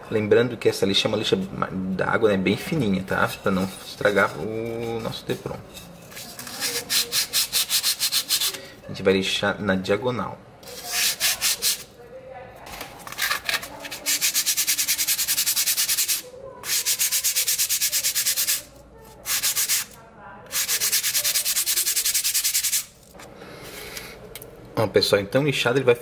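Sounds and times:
sandpaper rubbing foam: 0:06.2 - 0:08.6, 0:10.6 - 0:11.9, 0:13.3 - 0:23.0.

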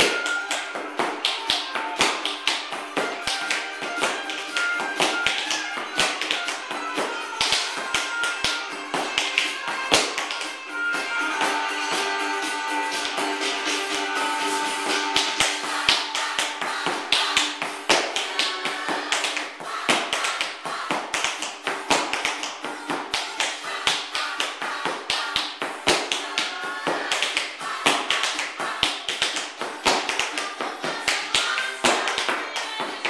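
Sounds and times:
tap shoes on wooden floor: 0:00.0 - 0:10.5
recorded music: 0:00.0 - 0:33.0.

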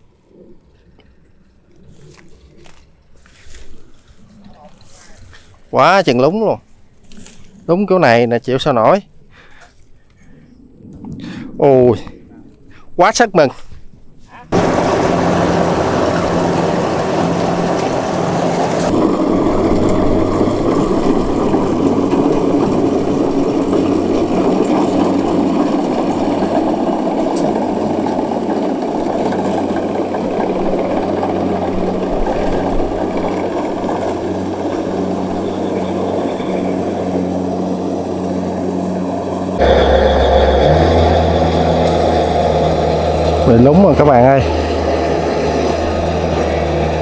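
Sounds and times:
harvester engine running: 0:14.5 - 0:47.0
threshing machinery clatter: 0:14.6 - 0:47.0.

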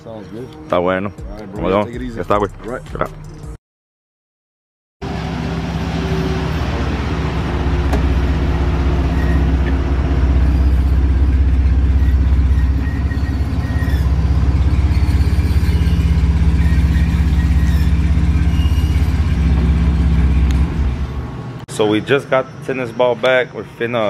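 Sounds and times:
pickup truck engine idling: 0:05.0 - 0:21.4.

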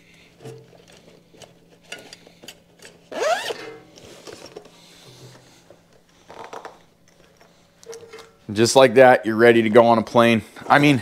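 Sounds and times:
zipper rasping: 0:03.1 - 0:03.7.

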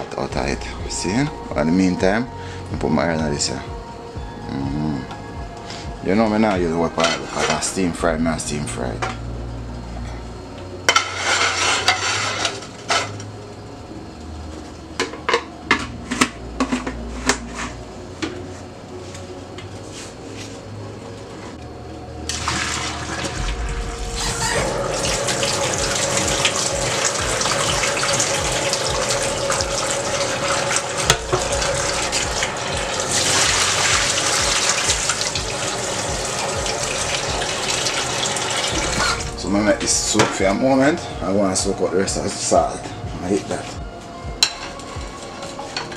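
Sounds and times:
pots and pans clinking: 0:10.9 - 0:13.2, 0:15.0 - 0:18.4, 0:24.2 - 0:39.3, 0:44.4 - 0:45.9
water poured into metal sink: 0:22.3 - 0:39.4.

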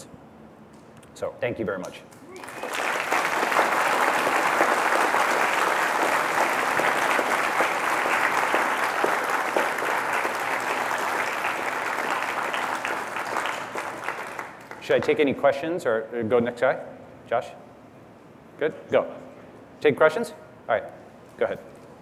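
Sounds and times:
audience applauding: 0:02.3 - 0:15.2.

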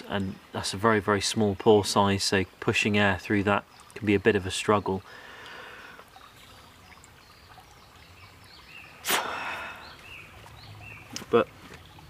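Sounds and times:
small birds chirping: 0:00.0 - 0:12.0
stream babbling: 0:00.0 - 0:12.0
rush of air and water: 0:08.6 - 0:12.0
breath blown into water filter: 0:09.0 - 0:10.0.

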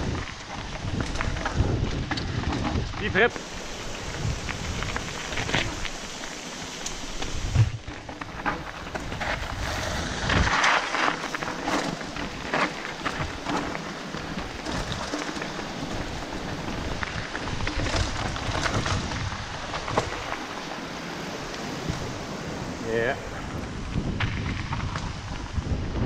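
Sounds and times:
bike rattling over bumps: 0:00.0 - 0:26.0
bike tyres rolling over gravel: 0:00.0 - 0:26.0
wind noise on microphone: 0:00.0 - 0:26.0.

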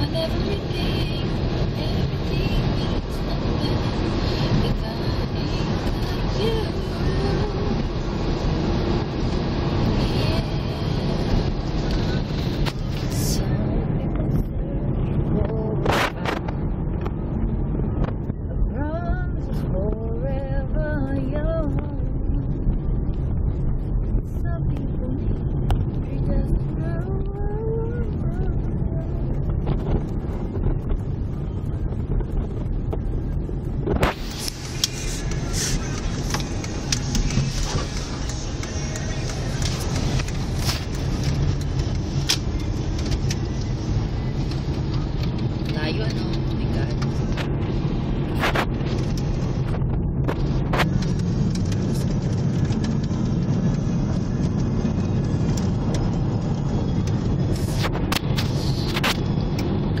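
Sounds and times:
car engine and tyres rumbling: 0:00.0 - 1:00.0
hiss with scattered clicks: 0:34.1 - 0:42.4.

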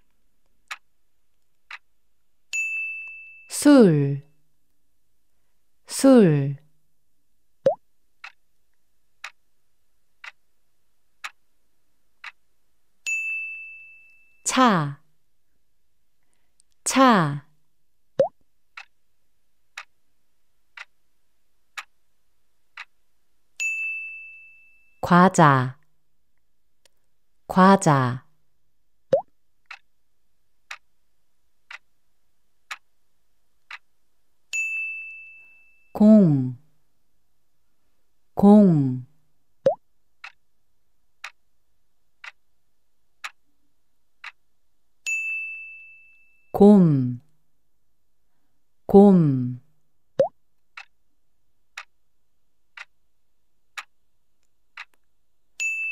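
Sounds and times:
clock ticking: 0:00.7 - 0:00.9, 0:01.7 - 0:01.9, 0:07.7 - 0:08.4, 0:09.2 - 0:09.4, 0:10.2 - 0:10.4, 0:11.2 - 0:11.4, 0:12.2 - 0:12.4, 0:18.2 - 0:19.0, 0:19.8 - 0:20.0, 0:20.7 - 0:21.0, 0:21.8 - 0:22.0, 0:22.7 - 0:23.0, 0:29.1 - 0:29.9, 0:30.7 - 0:30.9, 0:31.6 - 0:31.9, 0:32.6 - 0:32.9, 0:33.6 - 0:33.9, 0:39.6 - 0:40.4, 0:41.2 - 0:41.4, 0:42.2 - 0:42.4, 0:43.2 - 0:43.4, 0:44.2 - 0:44.4, 0:50.2 - 0:51.0, 0:51.8 - 0:52.0, 0:52.7 - 0:53.0, 0:53.7 - 0:54.0, 0:54.7 - 0:55.0
bell-like ding: 0:02.6 - 0:03.5, 0:13.1 - 0:14.4, 0:23.6 - 0:25.0, 0:34.6 - 0:35.9, 0:45.1 - 0:46.5, 0:55.6 - 0:55.9.

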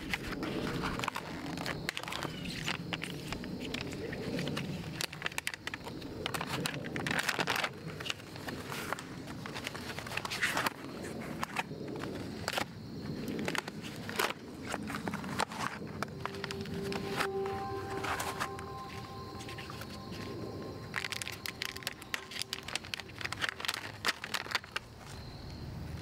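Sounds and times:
packaging rustling and crackling: 0:20.9 - 0:25.2.

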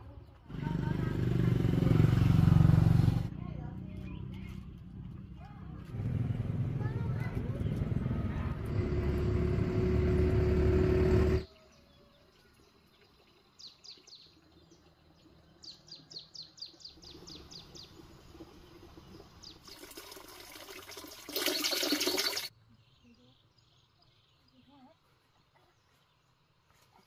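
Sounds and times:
market background hum: 0:00.0 - 0:11.4
bird chirping: 0:11.5 - 0:19.9
water pouring into basin: 0:16.9 - 0:22.5.

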